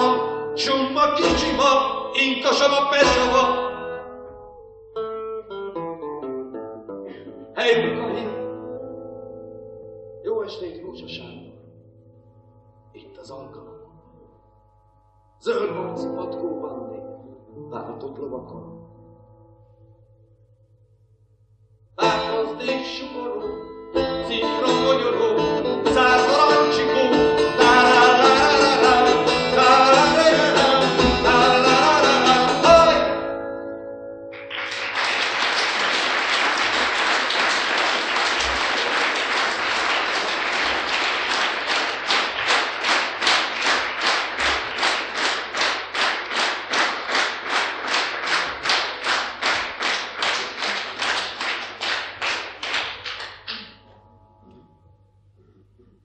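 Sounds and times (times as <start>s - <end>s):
person singing: 0.0s - 4.0s, 7.5s - 8.4s, 22.0s - 33.3s
acoustic guitar: 0.0s - 21.0s, 21.8s - 56.0s
rhythmic clapping in unison: 34.3s - 54.0s
audience applauding: 34.4s - 53.6s.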